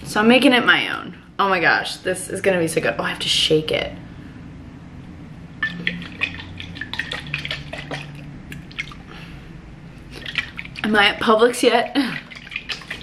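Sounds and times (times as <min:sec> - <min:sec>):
liquid sloshing in glass bottle: 0:05.6 - 0:09.3, 0:10.1 - 0:13.0.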